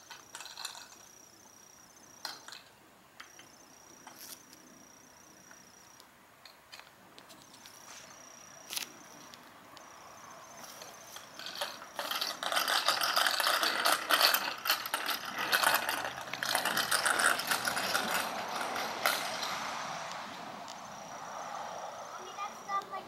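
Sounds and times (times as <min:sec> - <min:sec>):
bicycle rattling on asphalt: 0:00.0 - 0:01.2, 0:10.5 - 0:20.1.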